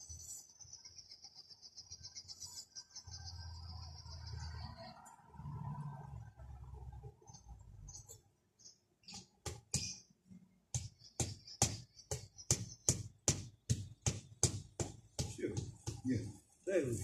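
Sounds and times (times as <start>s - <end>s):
hammer knocking on brick: 9.4s - 10.0s, 10.7s - 16.2s.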